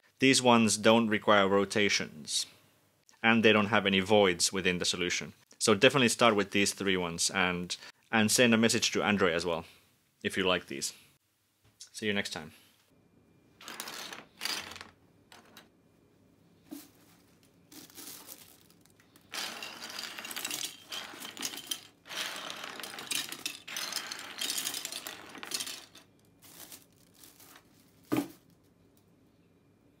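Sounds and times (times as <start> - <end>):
plastic pieces clattering: 17.7 - 28.4.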